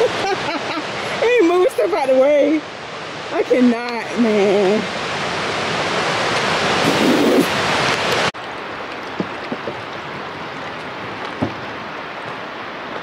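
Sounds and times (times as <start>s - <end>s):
steady rushing hiss: 0.2s - 9.8s
footsteps on wooden planks: 9.0s - 13.0s.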